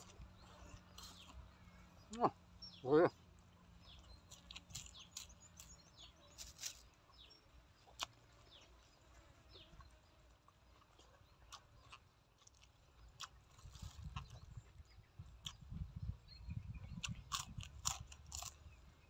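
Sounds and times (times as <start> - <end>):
chewing and lip-smacking: 0.0 - 1.6, 4.0 - 6.8, 9.7 - 15.8, 16.8 - 18.8.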